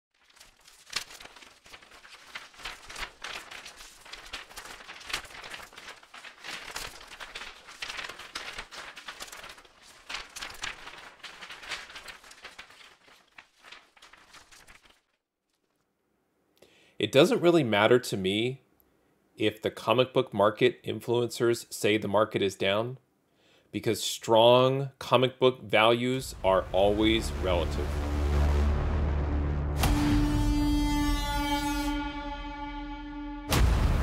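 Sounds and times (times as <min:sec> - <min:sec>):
crinkling and crackling: 0:00.1 - 0:15.9.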